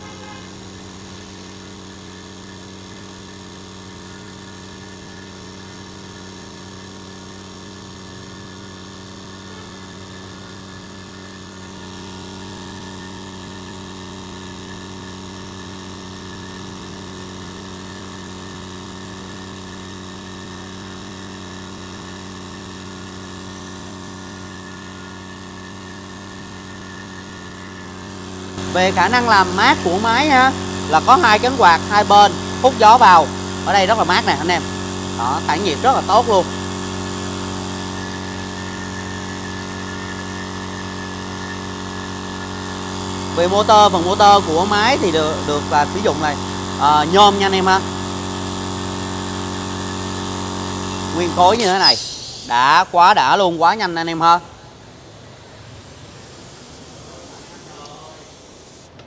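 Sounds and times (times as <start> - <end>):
air compressor humming: 0.0 - 59.0.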